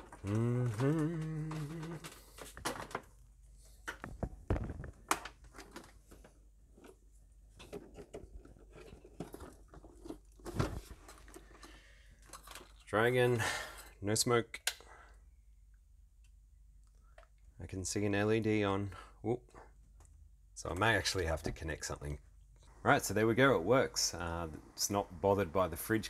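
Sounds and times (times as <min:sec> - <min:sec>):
person humming: 0:00.0 - 0:02.3.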